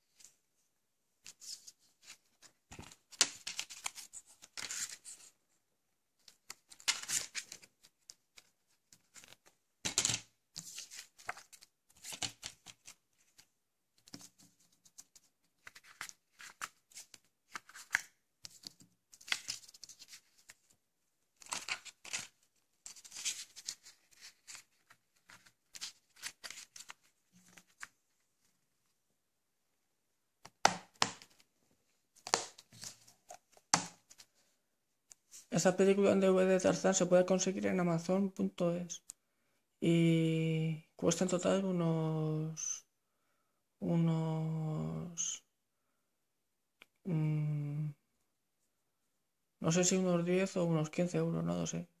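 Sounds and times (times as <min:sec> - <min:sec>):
paper and plastic case rustling: 0:06.2 - 0:20.7, 0:21.4 - 0:28.0.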